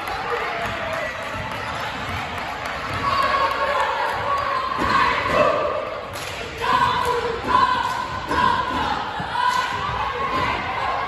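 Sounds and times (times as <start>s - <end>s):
cheerleaders chanting in unison: 2.8s - 11.0s.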